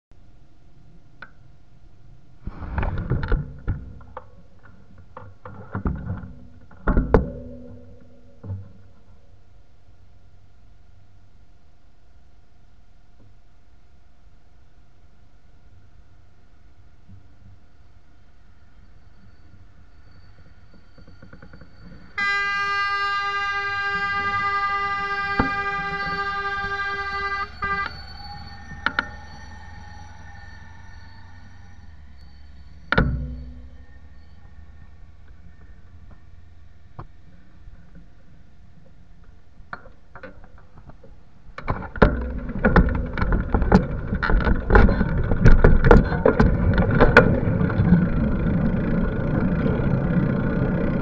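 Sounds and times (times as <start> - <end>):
faint high whine: 0.1 - 51.0
locomotive horn blast: 22.2 - 28.6.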